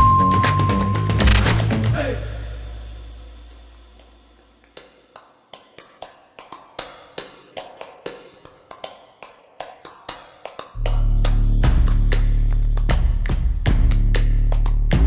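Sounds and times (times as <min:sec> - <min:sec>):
low tone: 0:00.0 - 0:01.5.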